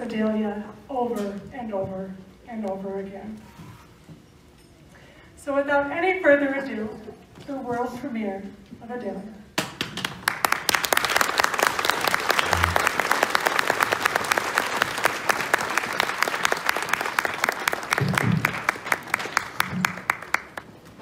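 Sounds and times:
close hand claps: 0:09.6 - 0:20.7
audience applauding: 0:09.8 - 0:20.8.

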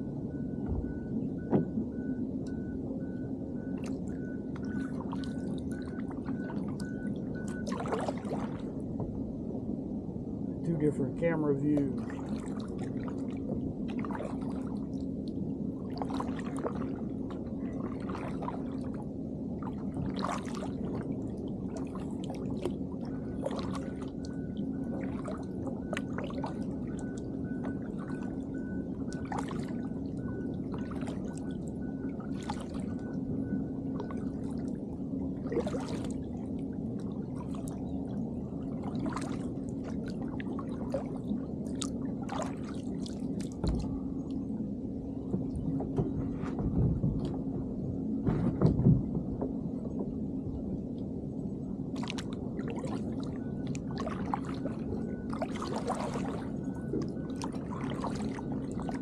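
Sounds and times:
low hum: 0:00.0 - 0:59.0
kayak paddle splashing water: 0:03.8 - 0:08.7, 0:12.0 - 0:15.0, 0:15.9 - 0:19.0, 0:19.6 - 0:33.0, 0:35.4 - 0:36.3, 0:38.7 - 0:43.9, 0:51.9 - 0:59.0.

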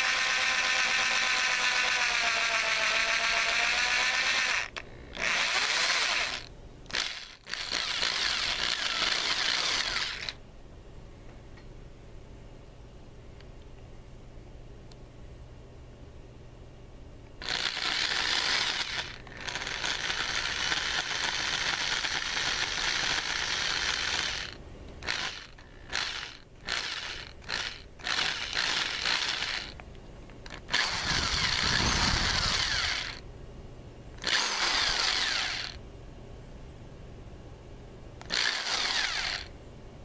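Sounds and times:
electric drill motor running: 0:00.0 - 0:10.4, 0:17.4 - 0:29.8, 0:30.5 - 0:33.2, 0:34.2 - 0:35.8, 0:38.2 - 0:39.5.

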